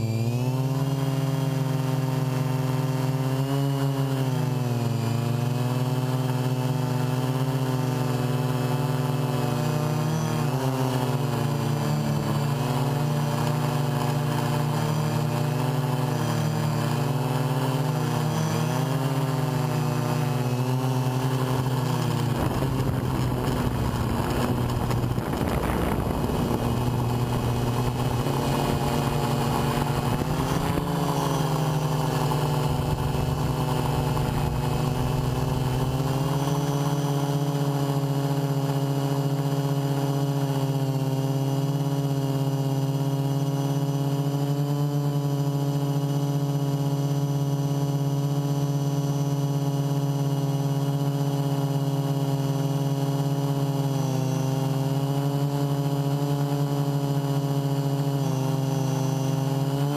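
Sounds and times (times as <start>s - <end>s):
drone motors whirring: 0.0s - 47.5s
rough rushing noise: 20.9s - 37.8s.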